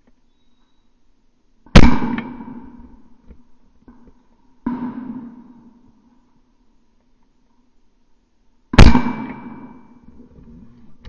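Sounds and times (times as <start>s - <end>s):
shotgun shots with echo: 1.7s - 3.0s, 8.7s - 10.0s.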